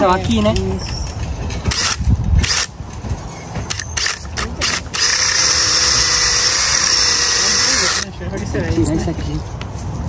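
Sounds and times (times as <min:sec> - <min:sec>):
cordless drill boring into watermelon: 0:04.0 - 0:08.0.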